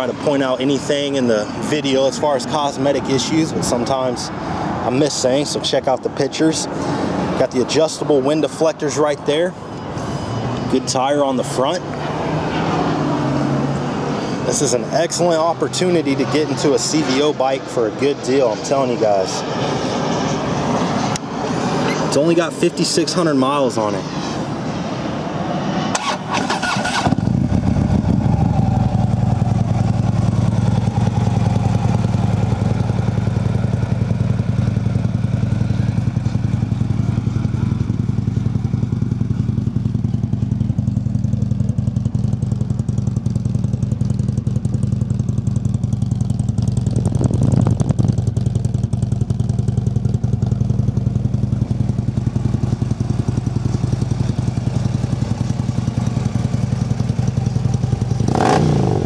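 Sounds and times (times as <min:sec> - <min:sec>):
motorcycle engine starting and idling: 0:25.9 - 0:59.0.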